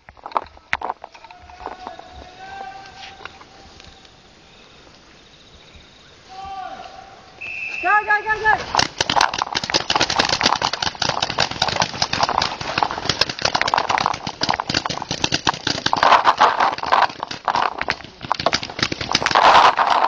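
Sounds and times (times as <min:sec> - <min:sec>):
player jostling: 0:08.6 - 0:20.0
paintball markers firing: 0:08.7 - 0:20.0.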